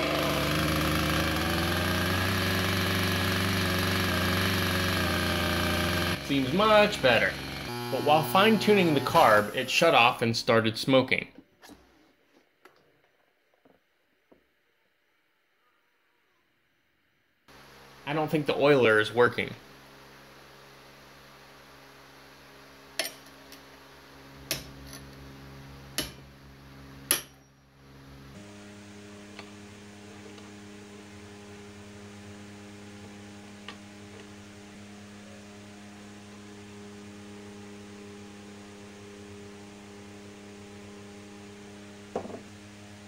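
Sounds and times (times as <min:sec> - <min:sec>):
tool knocking on metal: 0:42.2 - 0:42.4.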